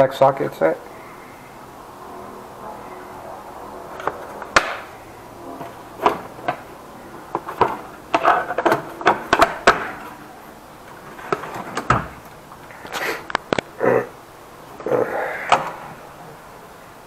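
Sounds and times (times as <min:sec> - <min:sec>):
plastic cases clicking and knocking: 0:05.6 - 0:10.2, 0:10.9 - 0:13.7.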